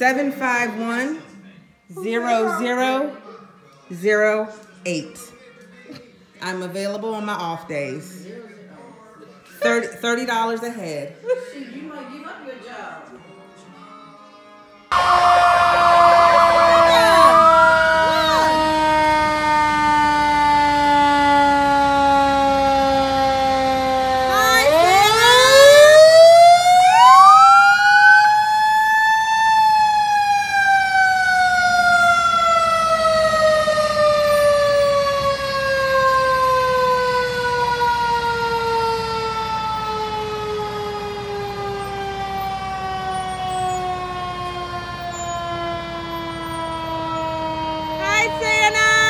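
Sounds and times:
mechanical siren wailing: 0:14.9 - 0:49.0.

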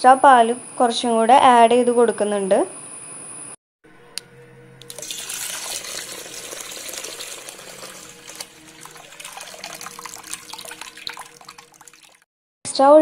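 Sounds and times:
milk pouring into pot: 0:04.8 - 0:12.3.

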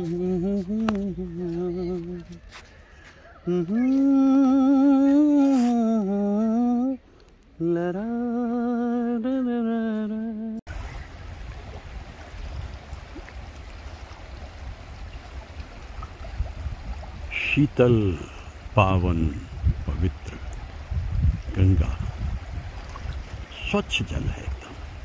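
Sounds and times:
person humming a tune: 0:00.0 - 0:02.6, 0:03.4 - 0:07.0, 0:07.6 - 0:10.6
river water rushing: 0:10.7 - 0:25.0.

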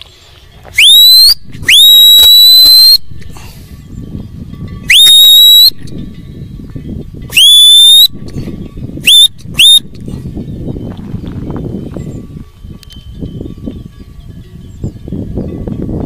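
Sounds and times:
shepherd's whistle: 0:00.7 - 0:03.1, 0:04.8 - 0:05.9, 0:07.3 - 0:08.2, 0:09.0 - 0:09.9.

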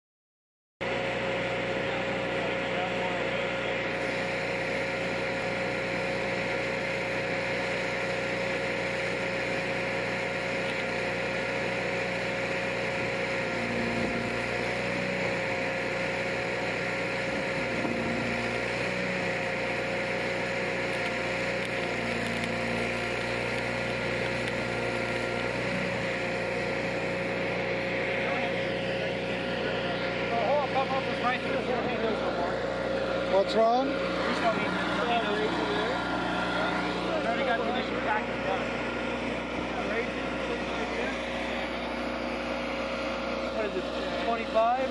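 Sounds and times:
engine droning: 0:00.8 - 0:44.9
welding arc sizzling: 0:03.8 - 0:32.3.

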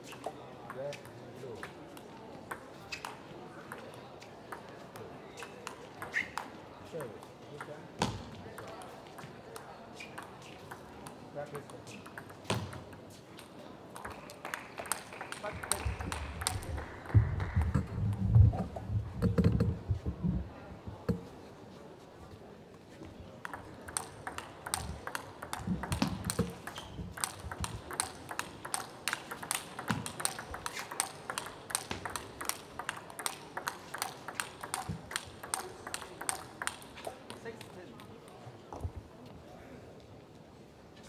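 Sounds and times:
table tennis balls clicking: 0:02.5 - 0:03.9, 0:04.5 - 0:07.8, 0:08.5 - 0:19.8, 0:23.4 - 0:38.4.

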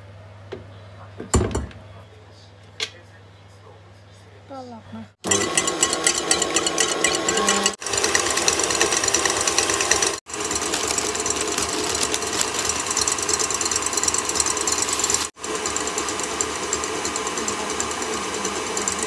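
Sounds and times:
stand mixer running: 0:05.2 - 0:19.0
whisk rattling in steel bowl: 0:05.2 - 0:19.0.

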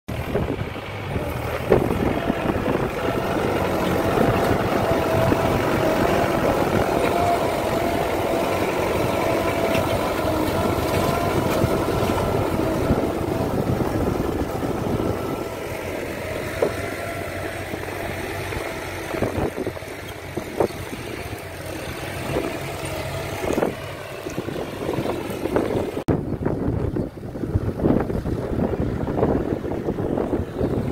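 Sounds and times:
tractor diesel engine under load: 0:00.1 - 0:30.9.

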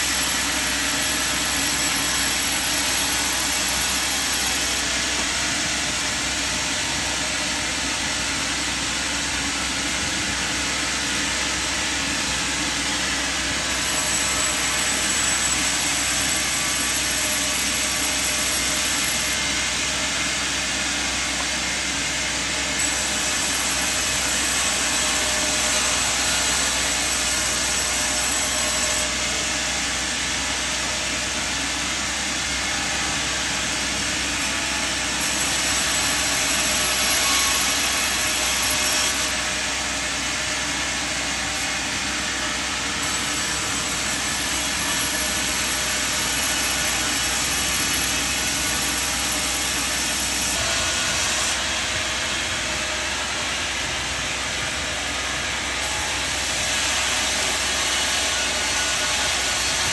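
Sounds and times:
sawmill machinery running: 0:00.0 - 0:59.9.

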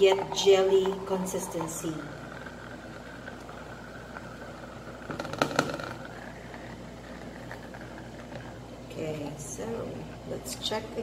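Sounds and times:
immersion blender motor whir: 0:00.0 - 0:08.6.

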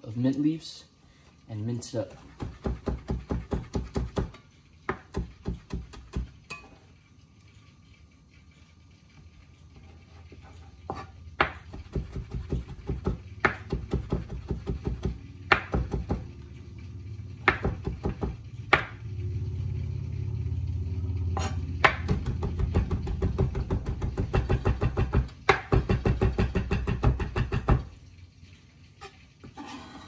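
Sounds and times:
low steady hum: 0:00.0 - 0:30.0
knife chopping on cutting board: 0:02.3 - 0:06.3, 0:10.9 - 0:16.2, 0:17.4 - 0:18.9.

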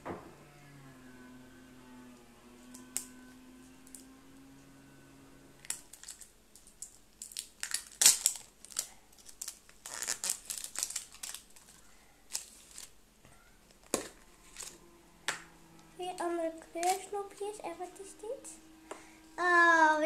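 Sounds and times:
plastic crinkling and snapping: 0:05.6 - 0:13.0, 0:13.6 - 0:15.4, 0:16.1 - 0:17.2.

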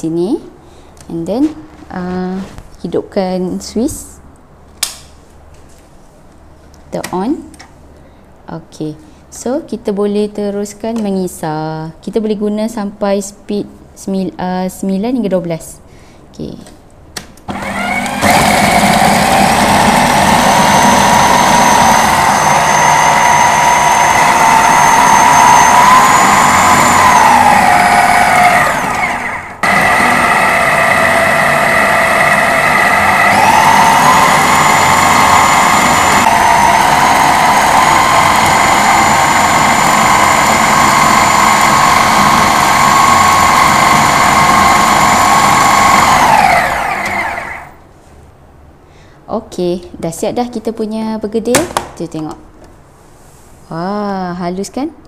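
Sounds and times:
food processor motor whining: 0:17.5 - 0:47.8.

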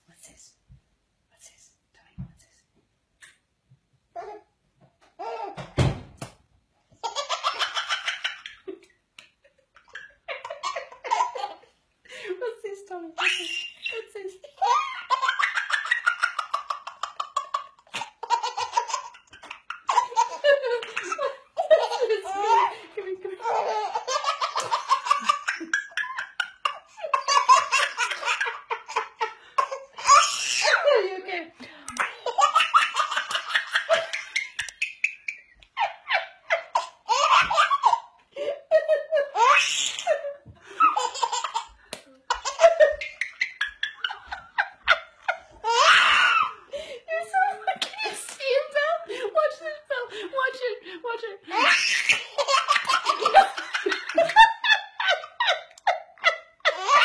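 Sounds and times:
baby giggling: 0:05.2 - 0:05.6, 0:07.0 - 0:08.7, 0:09.8 - 0:11.7, 0:13.2 - 0:30.9, 0:32.0 - 0:38.2, 0:38.9 - 0:41.7, 0:42.3 - 0:46.6, 0:51.5 - 0:57.0.

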